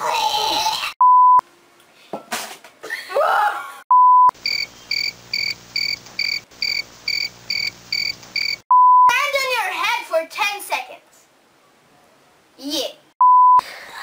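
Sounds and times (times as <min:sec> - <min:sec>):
censor bleeps: 0:01.0 - 0:01.4, 0:03.9 - 0:09.1, 0:13.2 - 0:13.6
high electronic beeping: 0:03.9 - 0:09.1.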